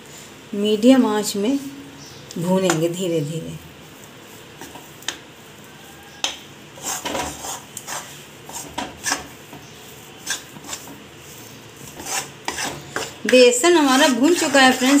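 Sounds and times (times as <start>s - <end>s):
metal spatula scraping a metal pan: 6.8s - 15.0s.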